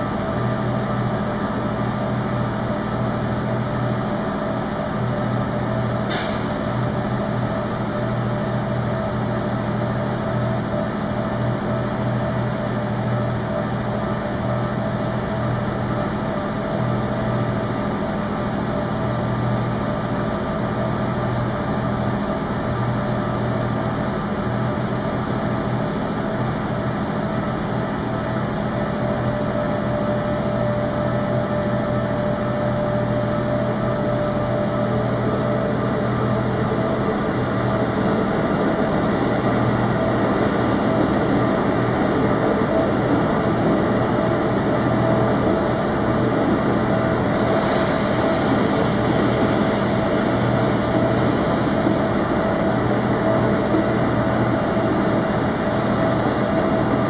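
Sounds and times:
engines idling in traffic: 0.0s - 57.0s.

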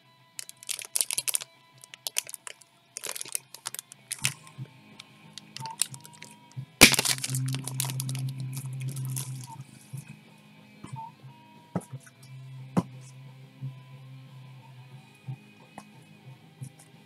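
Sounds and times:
plastic packaging crinkling: 0.4s - 4.5s, 5.4s - 9.6s
steady low hum: 3.3s - 16.9s
sharp crack: 6.8s - 9.5s.

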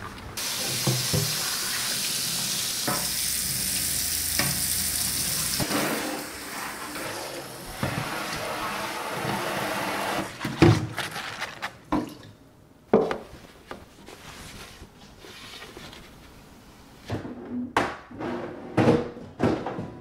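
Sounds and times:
tap water running over plastic: 0.4s - 5.7s
plastic shelves knocking and clattering: 10.3s - 12.1s, 17.1s - 20.0s.

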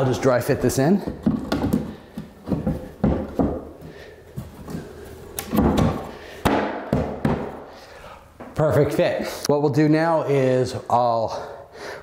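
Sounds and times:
wood knocking: 1.0s - 3.8s, 5.4s - 7.6s.

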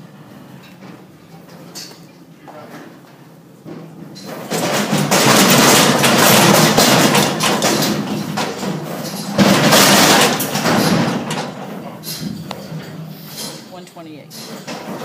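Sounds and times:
metal chute clanging and rattling: 3.8s - 15.0s.

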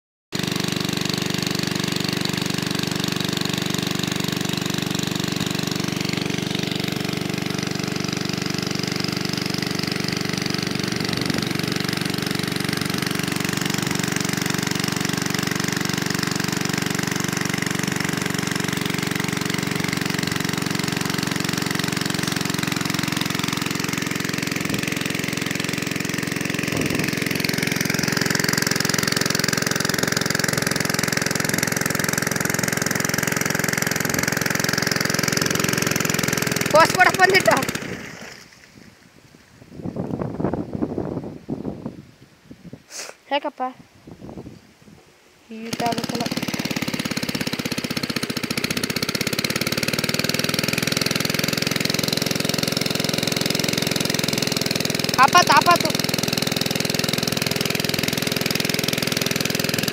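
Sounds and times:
diesel pump engine chugging: 0.4s - 38.5s, 45.6s - 59.9s
water gushing from pipe: 0.4s - 38.6s, 45.8s - 59.9s.

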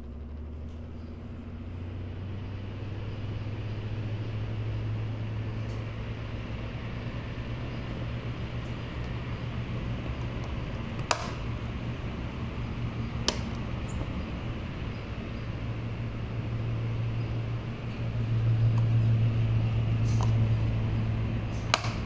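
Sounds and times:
electric fan humming: 0.0s - 22.0s.

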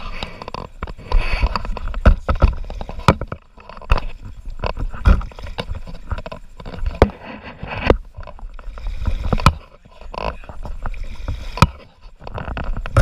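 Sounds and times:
sharp knocks against hull: 0.8s - 7.2s, 9.2s - 10.7s, 11.4s - 11.9s.

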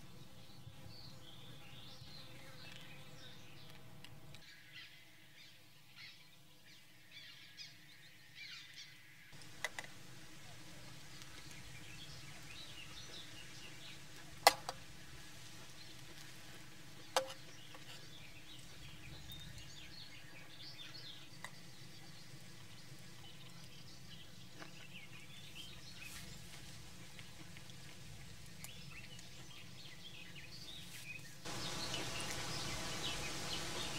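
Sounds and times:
birds chirping and singing: 28.6s - 33.9s.

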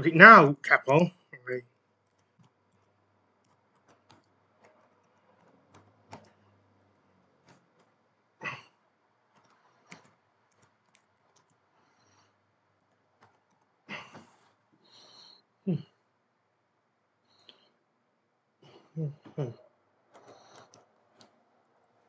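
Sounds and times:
computer keyboard typing: 2.0s - 6.6s, 9.3s - 11.6s.

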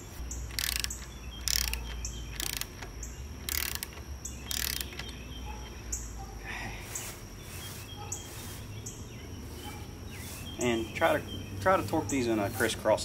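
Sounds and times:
birds chirping: 0.0s - 13.0s
torque wrench ratcheting: 0.3s - 5.7s.

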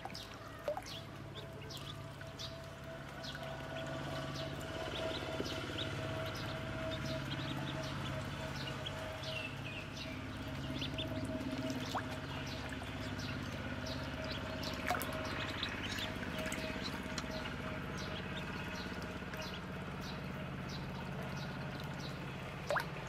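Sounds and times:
water splashing: 0.0s - 2.3s, 10.8s - 13.7s, 14.3s - 17.5s, 21.8s - 23.0s
ducklings peeping: 0.0s - 23.0s
steady low hum: 0.0s - 23.0s.

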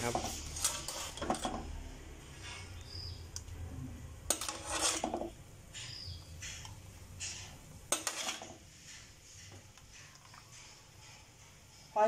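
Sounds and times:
metal spatula scraping a wok: 0.0s - 1.7s, 4.3s - 5.3s, 5.9s - 12.0s.

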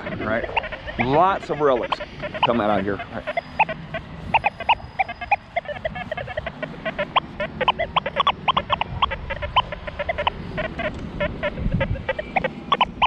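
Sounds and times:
metal detector beeping: 0.0s - 13.0s.

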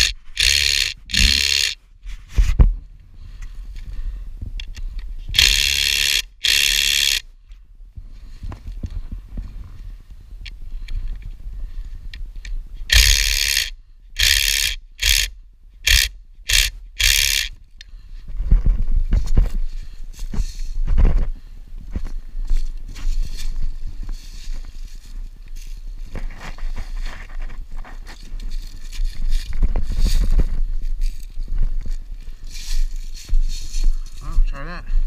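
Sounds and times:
cordless power driver running: 0.0s - 1.8s, 5.3s - 7.2s, 12.9s - 17.5s.

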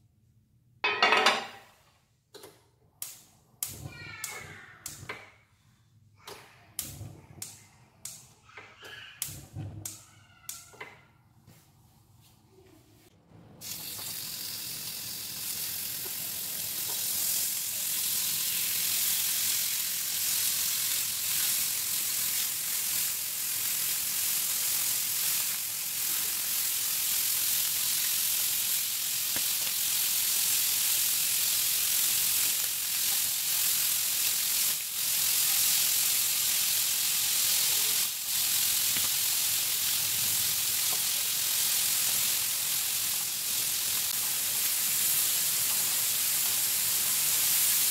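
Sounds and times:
meat sizzling in a grill pan: 13.6s - 47.9s.

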